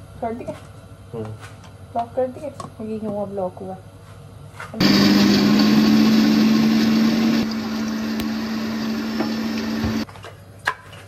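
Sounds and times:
food chopper motor running: 4.8s - 10.0s.

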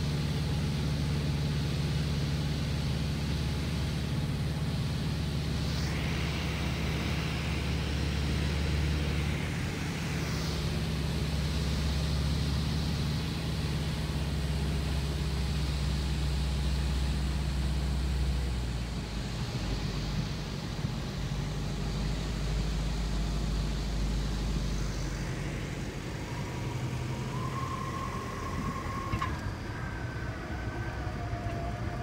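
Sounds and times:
propeller plane engine drone: 0.0s - 32.0s
thin steady whine: 0.0s - 32.0s
wind and cabin noise: 17.5s - 32.0s.

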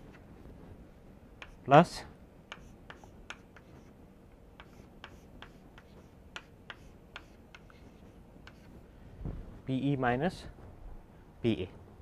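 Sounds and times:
chalk tapping on a blackboard: 1.4s - 1.7s, 2.5s - 3.9s, 4.6s - 8.8s.

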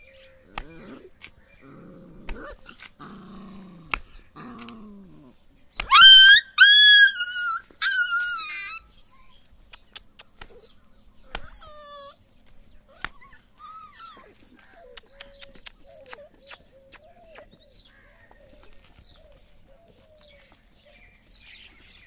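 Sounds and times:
puppies growling: 0.0s - 6.0s
puppy yelping: 5.8s - 9.7s, 11.3s - 12.2s, 12.9s - 17.5s
puppy whining: 5.8s - 10.7s, 11.3s - 17.6s.

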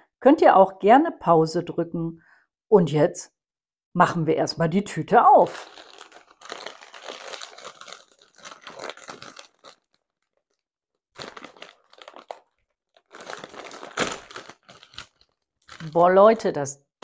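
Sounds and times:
crisp bag crinkling: 5.4s - 16.6s
bag seal tearing: 5.6s - 16.2s.

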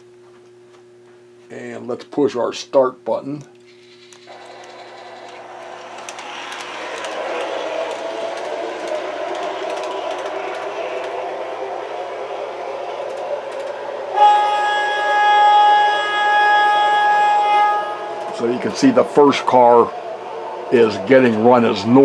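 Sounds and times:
model train motor whir: 3.7s - 14.3s.

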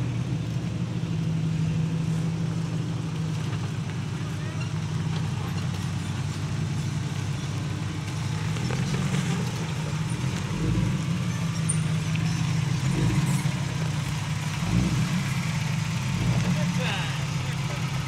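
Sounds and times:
engine running at low revs: 0.0s - 18.0s.

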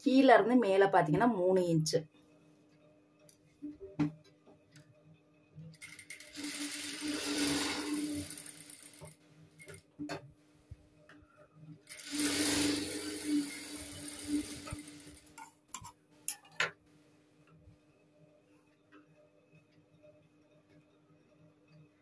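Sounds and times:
sewing machine motor humming: 5.8s - 9.8s, 11.8s - 15.4s
sewing machine stitching: 5.8s - 9.8s, 11.9s - 15.5s.

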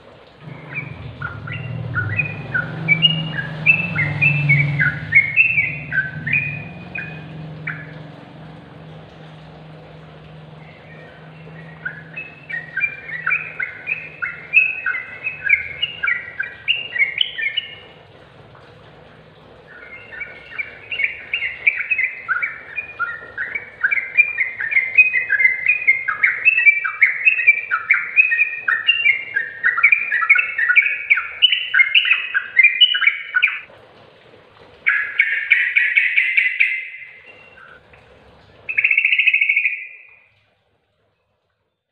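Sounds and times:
bulbul singing: 0.4s - 33.7s, 34.9s - 40.3s.

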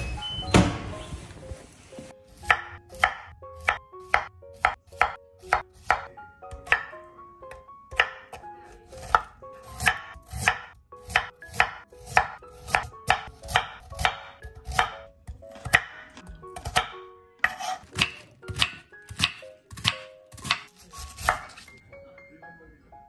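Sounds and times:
knife chopping on wooden board: 2.4s - 7.0s, 7.9s - 21.7s.

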